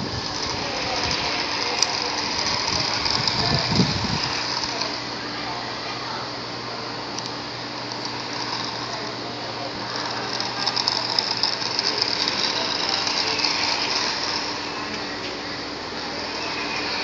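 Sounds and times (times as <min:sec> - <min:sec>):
plastic wheels and body rattling: 0:00.0 - 0:05.0, 0:09.9 - 0:15.0
electric motor whirring: 0:00.0 - 0:05.6, 0:07.0 - 0:17.0.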